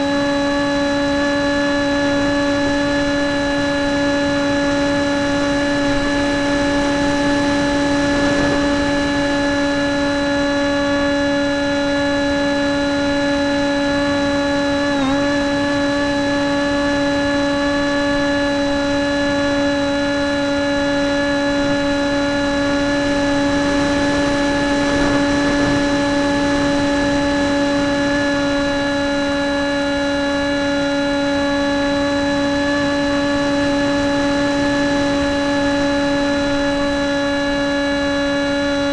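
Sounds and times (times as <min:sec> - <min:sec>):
model airplane motor whine: 0:00.0 - 0:38.9
rushing wind hiss: 0:04.4 - 0:10.6, 0:22.5 - 0:29.3.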